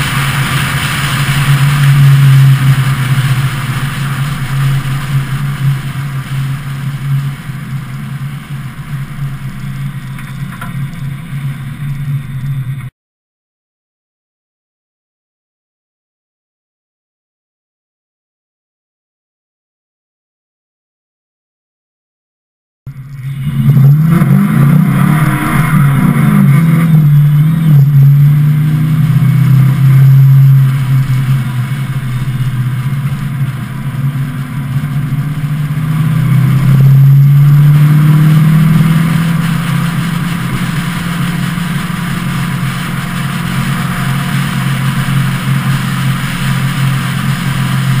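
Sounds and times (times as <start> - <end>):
car engine accelerating: 0.0 - 12.9, 22.9 - 48.0
wind and road noise: 0.0 - 12.9, 22.9 - 48.0.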